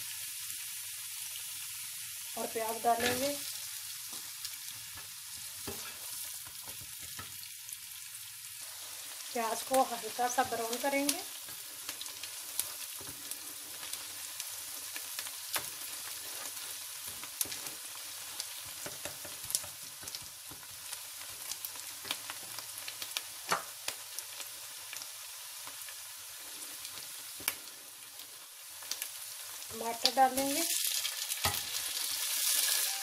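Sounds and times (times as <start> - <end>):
onion sizzling in oil: 0.0 - 33.0
spatula stirring in pot: 5.0 - 7.3, 10.3 - 21.5.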